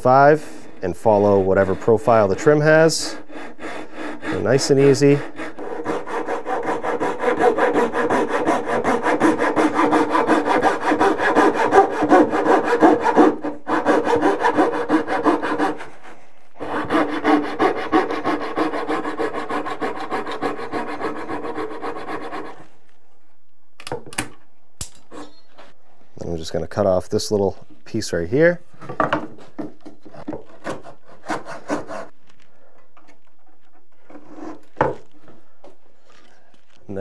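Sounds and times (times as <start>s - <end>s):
coping saw cutting wood: 0.2s - 22.7s, 30.2s - 32.1s.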